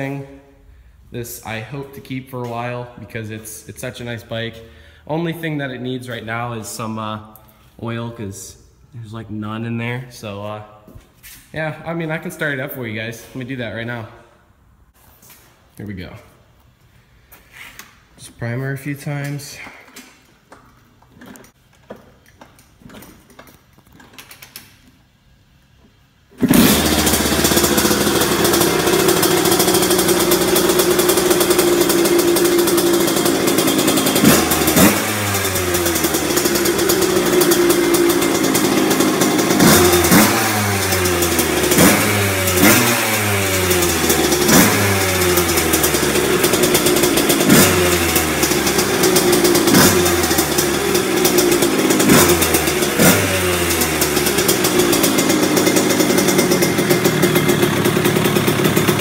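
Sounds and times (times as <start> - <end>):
motorcycle kick-start: 26.3 - 59.0
two-stroke engine revving: 26.4 - 59.0.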